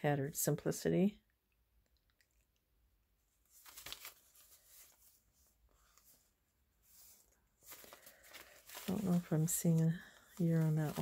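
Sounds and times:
paper envelope rustling: 3.4s - 11.0s.

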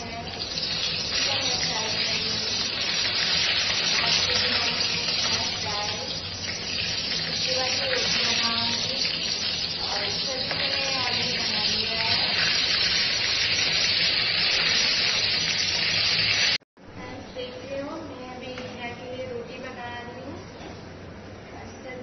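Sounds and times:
spatula turning food: 0.0s - 16.5s
food sizzling in hot oil: 0.0s - 16.6s.

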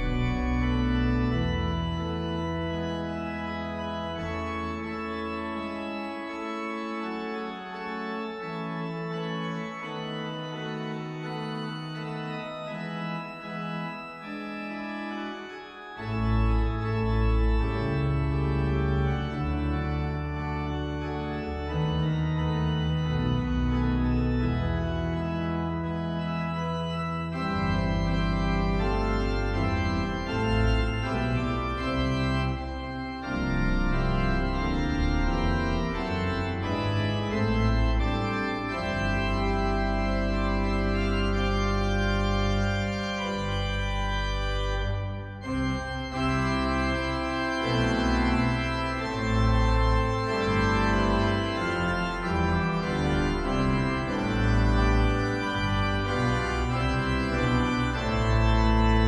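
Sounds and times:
deep bass pedal notes: 0.0s - 1.6s
organ playing chords: 0.0s - 59.0s.

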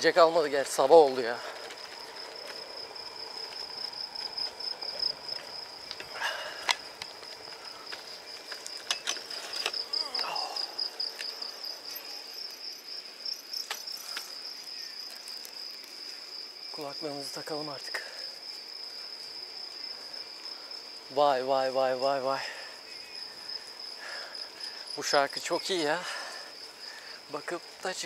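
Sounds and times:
crickets chirping: 0.0s - 28.0s
faint clicks: 13.6s - 14.3s.

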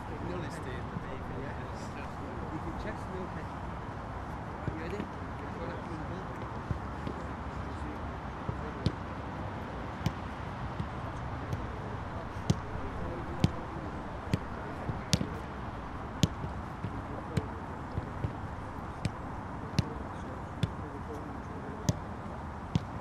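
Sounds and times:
outdoor background noise: 0.0s - 23.0s
football thuds: 8.4s - 9.0s, 10.0s - 21.2s, 22.7s - 23.0s.

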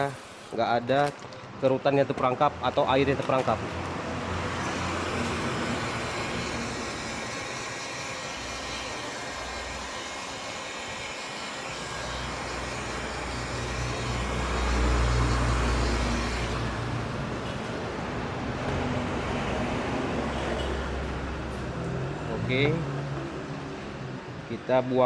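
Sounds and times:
heat gun blowing: 0.0s - 1.2s, 4.3s - 17.7s.

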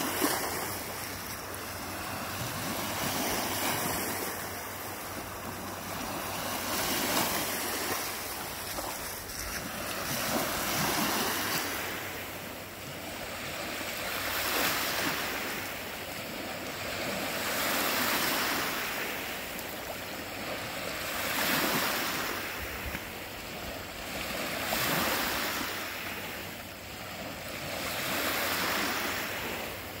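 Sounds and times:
waves breaking on shore: 0.0s - 30.0s.

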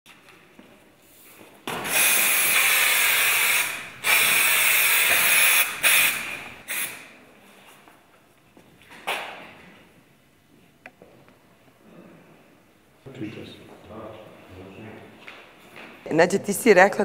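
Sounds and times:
hissing spray: 1.9s - 7.1s.

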